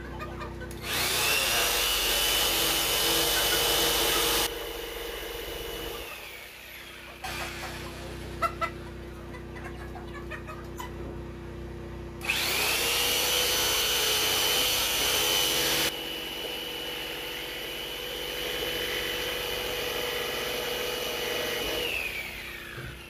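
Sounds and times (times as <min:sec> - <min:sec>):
power tool whining: 0:00.7 - 0:08.3, 0:12.2 - 0:23.0.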